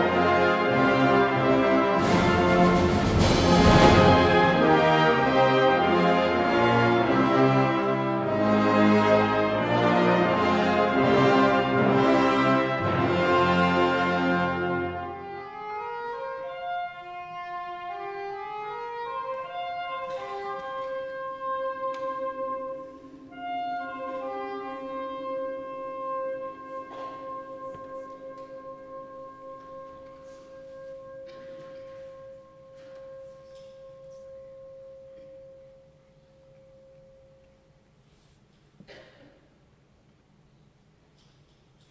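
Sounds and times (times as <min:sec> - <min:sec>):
fanfare band playing: 0:00.0 - 0:31.2.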